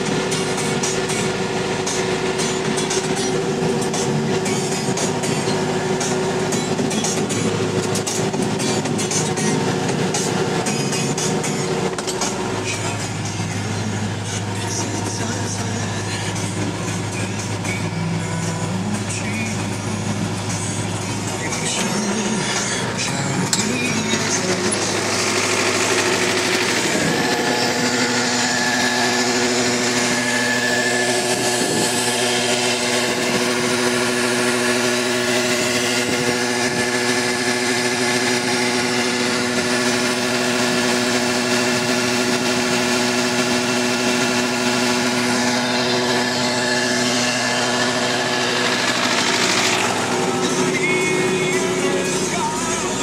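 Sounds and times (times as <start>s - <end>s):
tractor diesel engine running: 0.0s - 53.0s.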